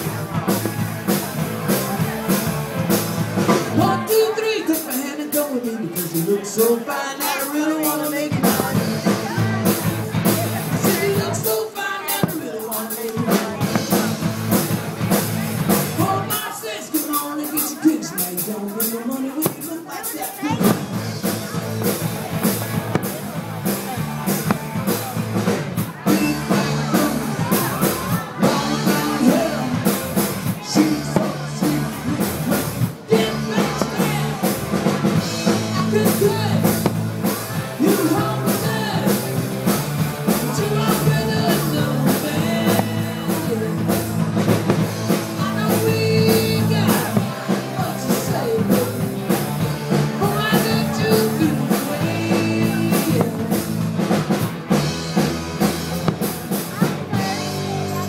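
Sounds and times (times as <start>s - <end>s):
rock music with singing: 0.0s - 58.0s
steady drum beat: 0.0s - 58.0s.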